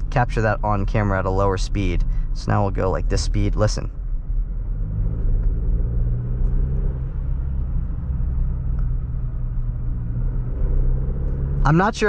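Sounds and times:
low road rumble: 0:00.0 - 0:12.0
truck engine running: 0:06.4 - 0:12.0.

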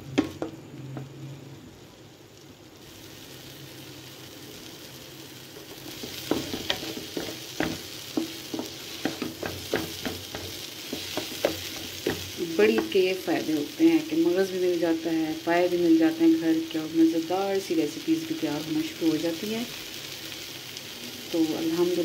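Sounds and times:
food sizzling in a pan: 0:00.0 - 0:22.0
wooden spatula scraping a pan: 0:05.6 - 0:13.0.

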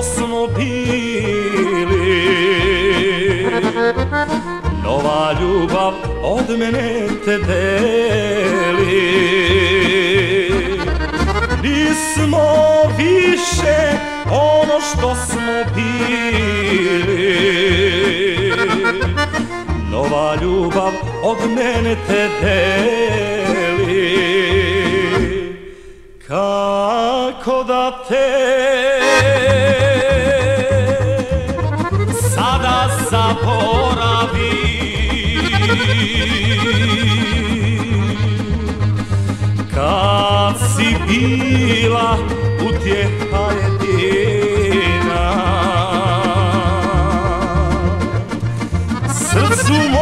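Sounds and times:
accordion-led folk band: 0:00.0 - 0:26.1, 0:28.7 - 0:50.0
steady bass beat: 0:29.1 - 0:44.0.

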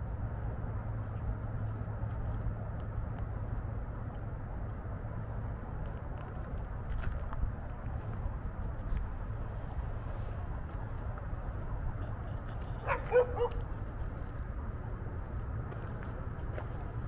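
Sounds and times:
low outdoor rumble: 0:00.0 - 0:17.0
dog barking: 0:12.8 - 0:13.6.

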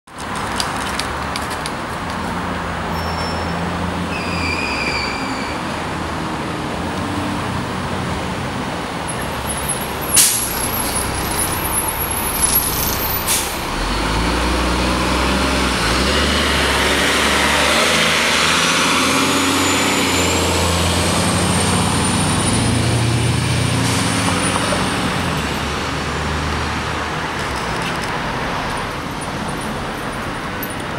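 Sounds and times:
bus pulling away: 0:02.9 - 0:30.5
air brake hisses: 0:10.2 - 0:10.6, 0:13.2 - 0:13.7.

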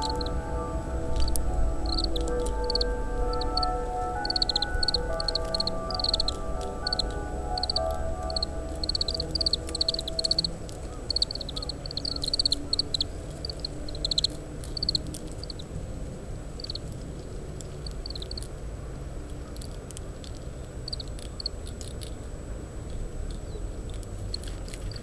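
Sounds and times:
finch twittering calls: 0:00.0 - 0:00.5, 0:01.1 - 0:15.7
low rumble of wind: 0:00.0 - 0:25.0.

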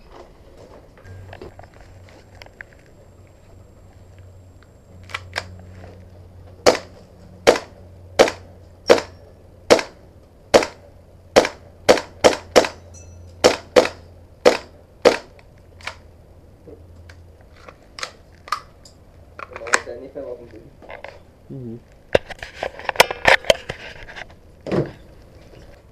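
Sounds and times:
airsoft pistol shots: 0:06.6 - 0:12.8, 0:13.4 - 0:16.0.

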